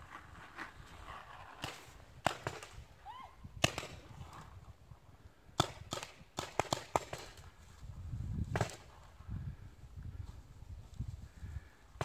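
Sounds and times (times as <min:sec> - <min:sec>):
paintball markers firing: 0:05.6 - 0:07.4.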